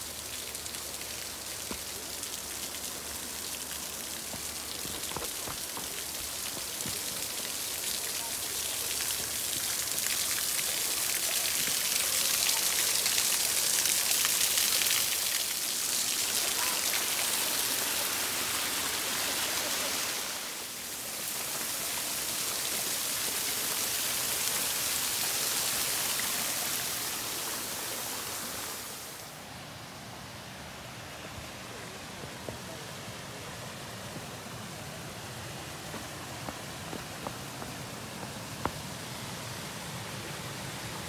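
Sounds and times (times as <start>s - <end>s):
waterfall splashing into pool: 0.0s - 29.3s.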